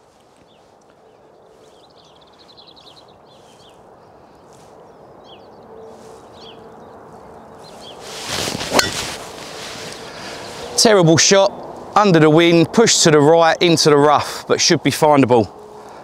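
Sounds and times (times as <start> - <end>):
small birds singing: 0.0 - 9.0, 9.7 - 12.5
outdoor background hiss: 0.0 - 16.0.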